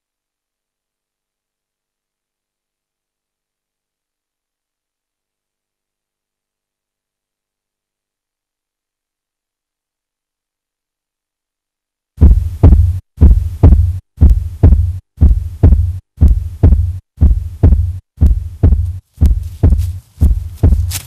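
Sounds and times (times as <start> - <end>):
heartbeat thumps: 12.2 - 21.0.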